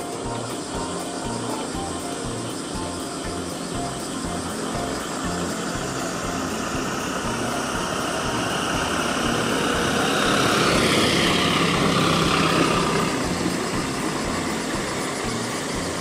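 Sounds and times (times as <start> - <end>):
motor vehicle passing: 4.2 - 16.0.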